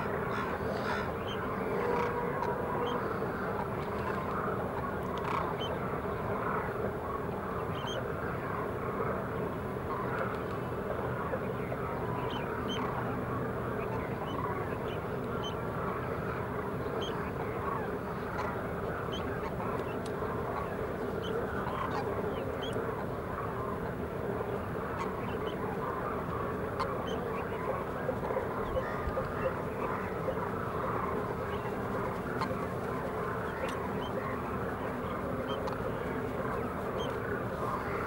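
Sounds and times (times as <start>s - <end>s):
cranes calling: 0.0s - 4.6s, 24.8s - 38.0s.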